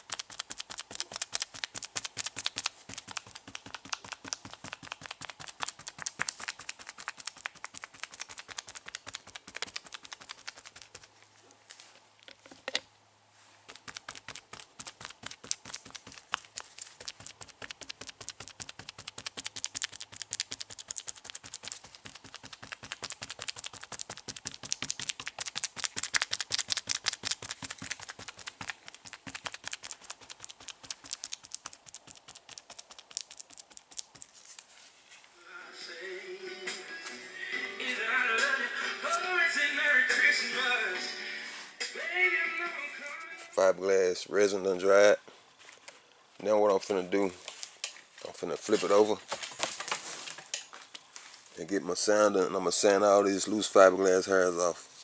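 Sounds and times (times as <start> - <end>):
brush dabbing wet resin: 0.0 - 11.4, 13.5 - 35.0.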